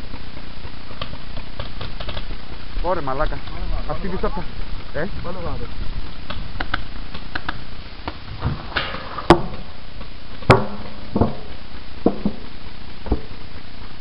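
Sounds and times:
paintball marker shots: 1.0s - 2.3s.

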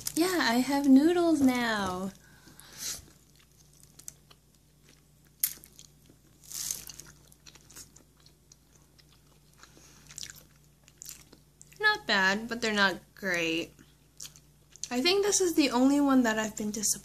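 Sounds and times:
person chewing noodles: 2.3s - 11.8s, 14.2s - 14.9s.

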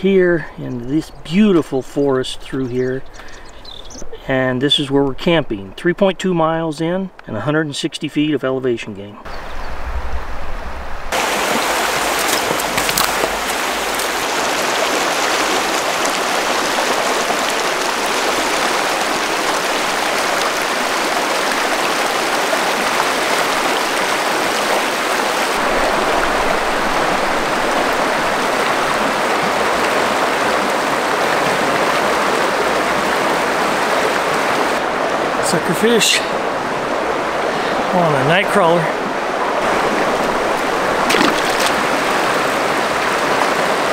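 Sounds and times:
river water rushing over rocks: 11.1s - 43.9s.

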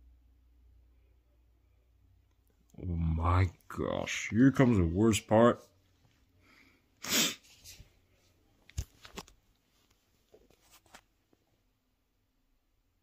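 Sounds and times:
sharp burst of breath: 6.4s - 7.6s.

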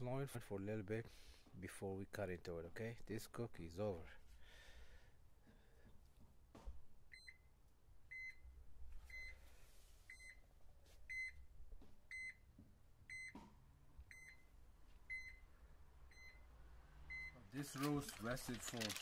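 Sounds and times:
thermometer alarm beeping: 8.1s - 8.4s, 11.1s - 11.4s, 12.1s - 12.4s, 13.1s - 13.4s, 14.1s - 14.5s, 15.1s - 15.4s, 16.1s - 16.5s, 17.1s - 17.4s.

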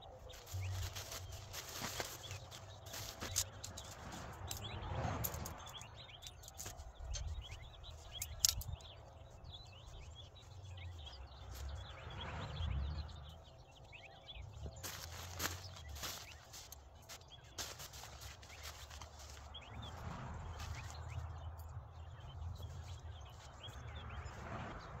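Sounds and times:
small birds chirping: 0.0s - 25.0s
tent fabric rustling: 0.1s - 4.6s, 14.5s - 21.2s.

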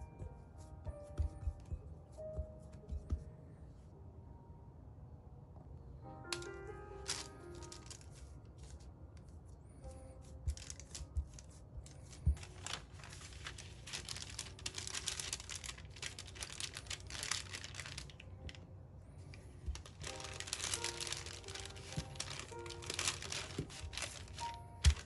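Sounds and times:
faint music: 0.0s - 25.0s
hands thumping dough: 0.2s - 3.4s, 10.3s - 12.6s
sheet crinkling and rustling: 6.3s - 9.0s, 10.4s - 18.6s, 19.2s - 25.0s.

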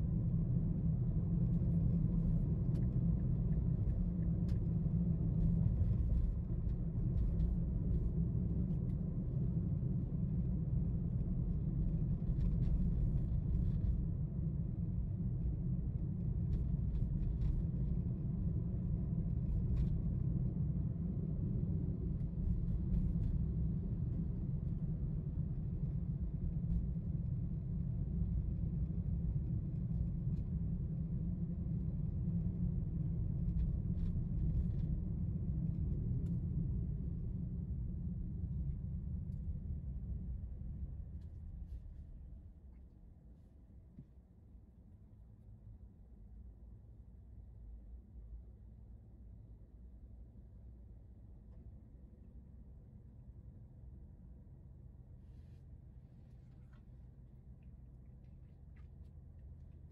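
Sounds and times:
car road and engine rumble: 0.0s - 42.5s.

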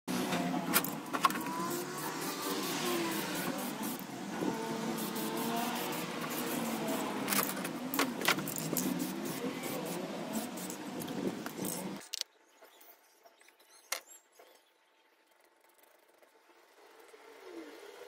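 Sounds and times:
outdoor background noise: 0.1s - 18.0s
spray can ball rattling: 5.0s - 12.2s.

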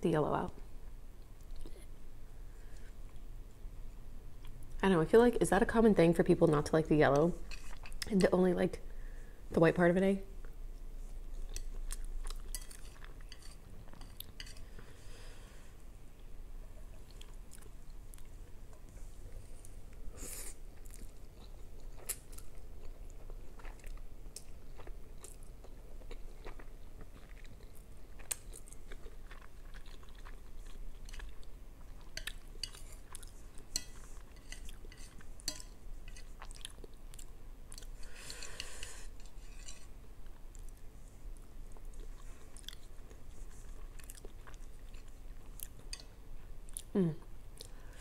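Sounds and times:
chewing and slurping noodles: 20.3s - 39.9s.

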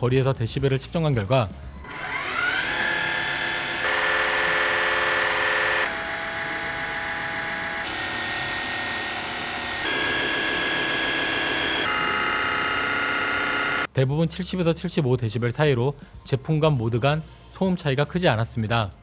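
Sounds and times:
water flosser pump whine: 1.8s - 13.9s.

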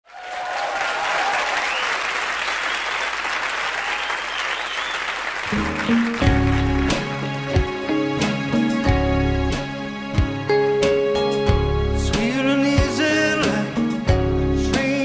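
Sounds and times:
audience applauding: 0.0s - 7.8s
band playing: 5.4s - 15.0s.

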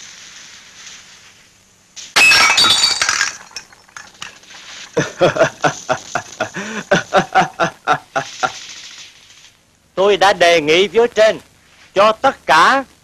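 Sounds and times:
glass smashing: 2.2s - 5.0s.

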